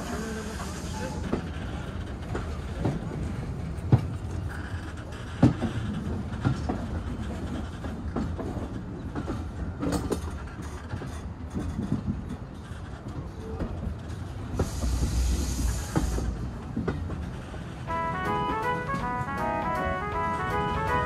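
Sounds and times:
train rumbling on track: 0:00.0 - 0:21.0
wheels clacking and knocking: 0:01.2 - 0:15.0.

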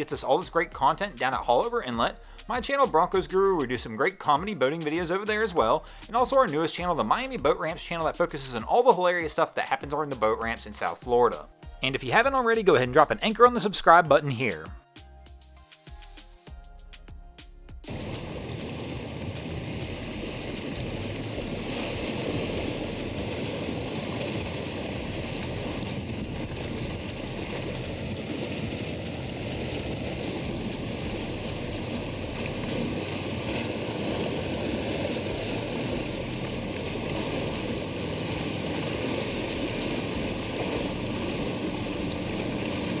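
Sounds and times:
boat engine running: 0:00.0 - 0:03.8, 0:17.8 - 0:43.0
choppy water rushing: 0:00.0 - 0:09.2, 0:17.8 - 0:43.0.

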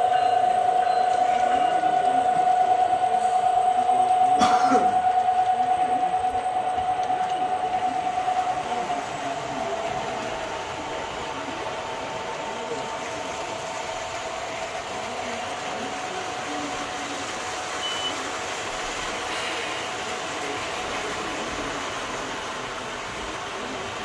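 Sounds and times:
faint voices: 0:00.0 - 0:24.0
model train cars rolling: 0:05.0 - 0:24.0
short high beep: 0:17.8 - 0:18.2.

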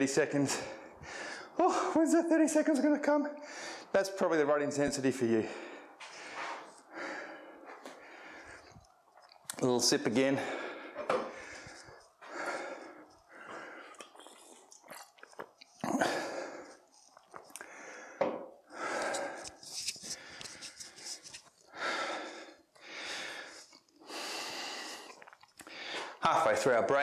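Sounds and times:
man breathing hard: 0:00.4 - 0:02.0, 0:03.4 - 0:04.0, 0:05.3 - 0:08.9, 0:10.2 - 0:14.7, 0:15.8 - 0:26.2.

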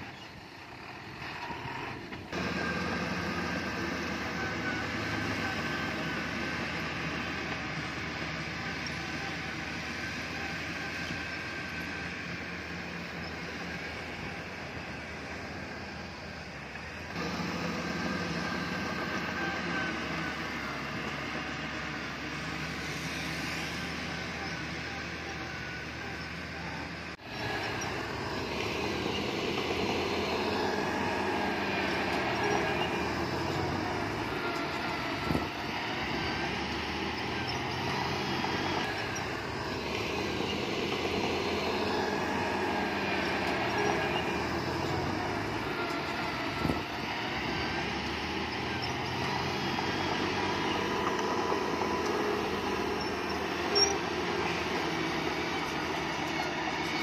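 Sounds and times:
diesel machinery running: 0:00.0 - 0:57.0.

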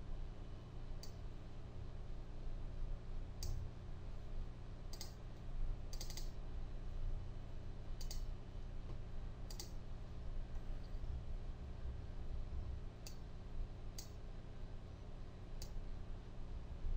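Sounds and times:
steady low hum: 0:00.0 - 0:16.9
computer mouse clicking: 0:03.4 - 0:03.6, 0:04.9 - 0:05.2, 0:05.9 - 0:06.4, 0:08.0 - 0:08.3, 0:09.5 - 0:09.8, 0:13.0 - 0:13.2, 0:14.0 - 0:14.2.

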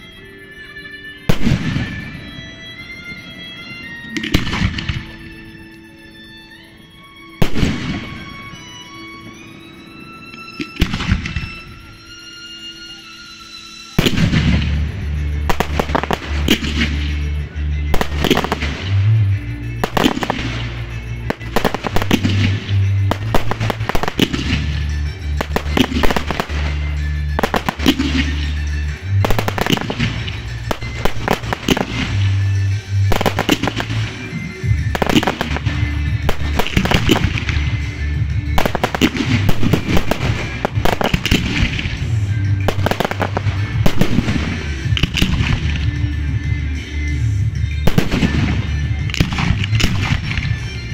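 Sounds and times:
fireworks bursting and crackling: 0:01.2 - 0:05.8, 0:07.4 - 0:50.9
music with low bass: 0:14.0 - 0:50.9.

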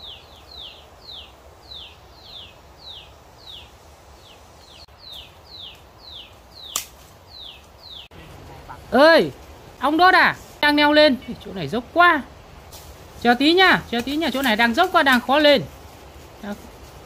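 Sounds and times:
bird calling: 0:00.0 - 0:08.9
sharp snap: 0:06.6 - 0:07.1.

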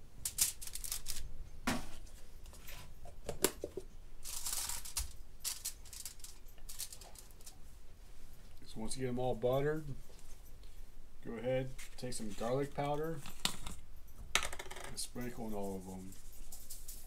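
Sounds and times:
aluminium foil crinkling: 0:00.2 - 0:01.3, 0:04.2 - 0:07.6.

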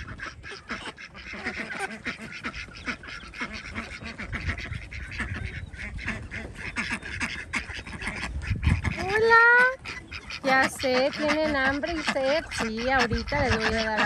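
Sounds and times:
ducks quacking: 0:00.0 - 0:14.0.

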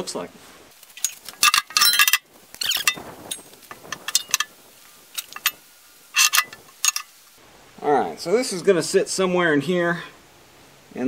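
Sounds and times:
steel parts clanking on bucket: 0:01.0 - 0:07.2.

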